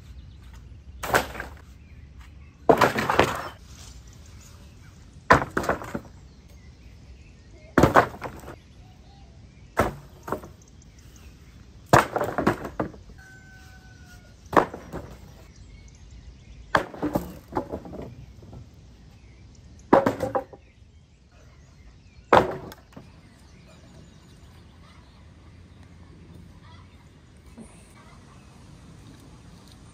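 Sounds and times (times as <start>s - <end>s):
knocks and bangs of building work: 1.0s - 1.6s, 2.6s - 3.6s, 5.3s - 6.2s, 7.8s - 8.6s, 9.8s - 10.6s, 11.8s - 13.3s, 14.5s - 15.5s, 16.7s - 18.8s, 19.9s - 20.7s, 22.3s - 23.2s.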